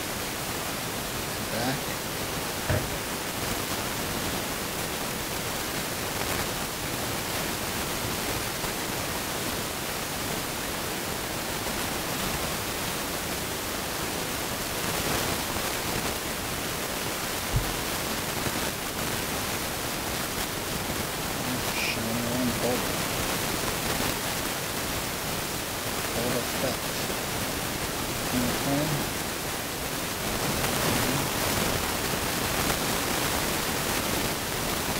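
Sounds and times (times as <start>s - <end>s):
steady hiss: 0.0s - 34.9s
low thump: 2.7s - 3.0s, 17.5s - 17.9s.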